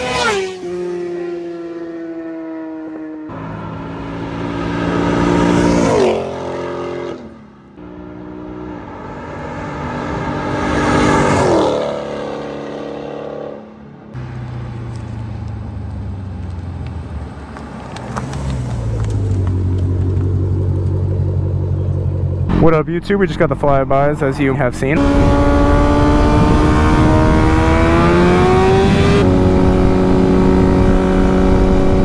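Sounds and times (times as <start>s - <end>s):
fast vehicles passing by: 0.0s - 32.0s
car engine idling: 14.2s - 25.2s.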